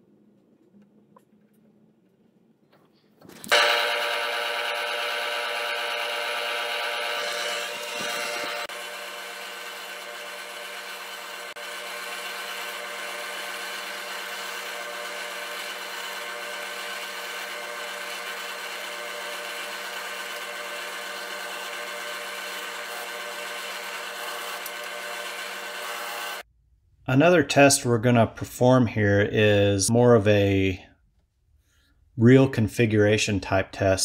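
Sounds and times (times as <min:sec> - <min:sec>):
drill bit boring into wood: 0:03.5 - 0:26.4
drill press motor running: 0:03.5 - 0:26.5.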